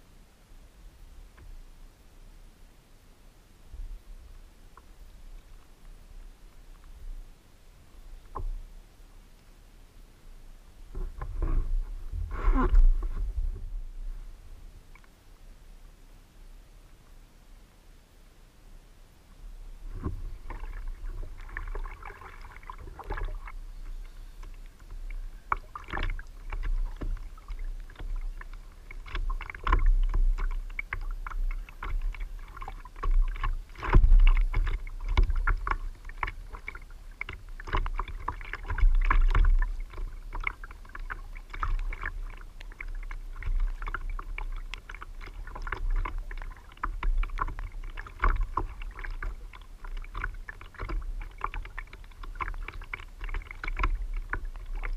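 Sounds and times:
wind rumble on microphone: 3.7s - 7.4s, 10.8s - 15.0s, 19.5s - 54.9s
water sloshing against plastic hull: 4.7s - 8.8s, 10.8s - 15.2s, 19.7s - 54.9s
knocks and clicks from fishing gear: 33.0s - 40.6s.

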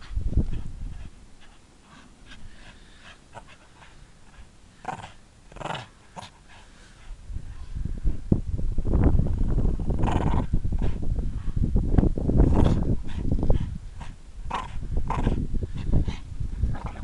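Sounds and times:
dog huffing and panting: 0.0s - 5.2s, 12.5s - 17.0s
dog play-growling: 0.4s - 6.7s, 9.9s - 11.0s, 12.4s - 17.0s.

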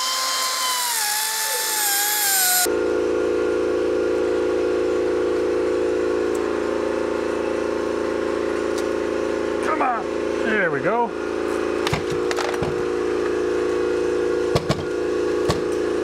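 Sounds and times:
grinder cutting metal: 0.0s - 2.7s.

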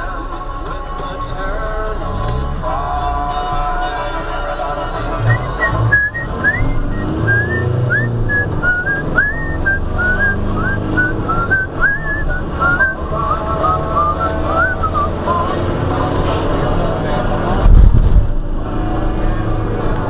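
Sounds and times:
vehicle engine rumble: 0.0s - 20.0s
person whistling a tune: 5.2s - 15.5s.

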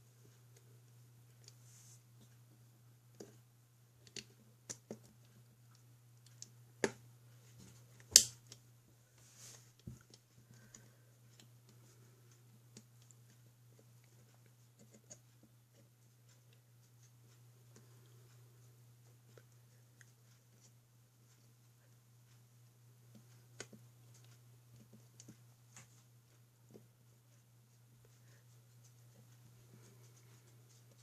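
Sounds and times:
faint low hum: 0.0s - 31.0s
light clicks and taps: 9.8s - 31.0s.

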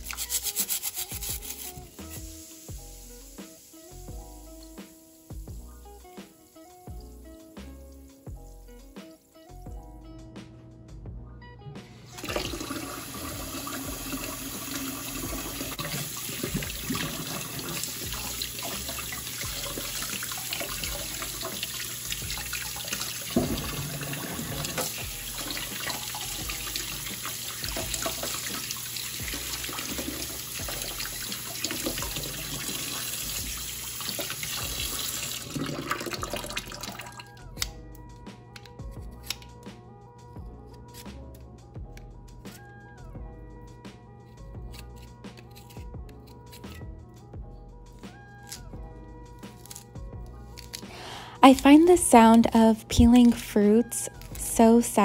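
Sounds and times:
background music: 0.0s - 55.0s
tap running into sink: 12.2s - 37.0s.

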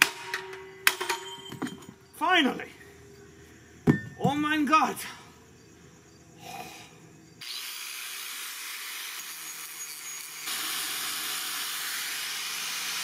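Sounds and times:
angle grinder cutting steel: 7.4s - 13.0s.

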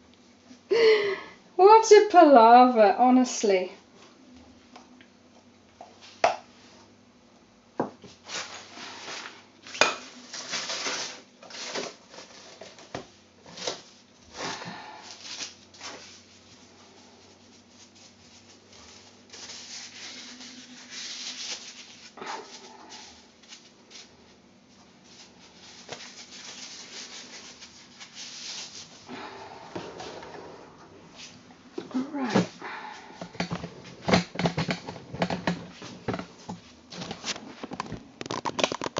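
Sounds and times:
rubbing and scraping on pot: 15.9s - 23.6s, 25.0s - 29.0s.

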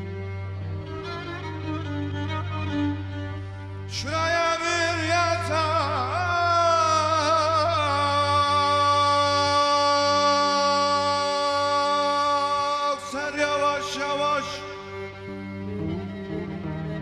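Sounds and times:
man singing: 3.8s - 15.3s.

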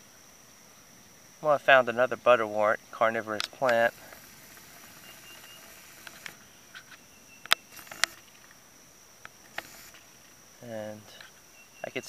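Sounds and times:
high-pitched insect drone: 0.0s - 12.0s
sharp clicks: 3.3s - 8.6s, 9.2s - 10.4s.

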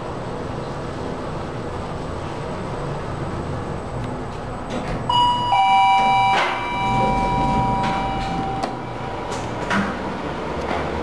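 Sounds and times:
two-note elevator chime: 5.1s - 9.5s.

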